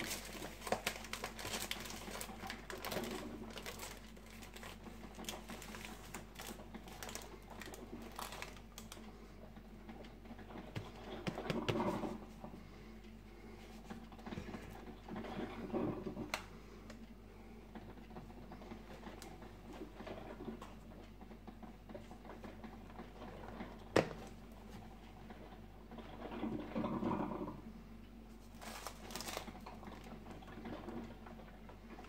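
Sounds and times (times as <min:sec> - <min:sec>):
foil bag rustling: 0:00.0 - 0:09.0, 0:28.4 - 0:30.6.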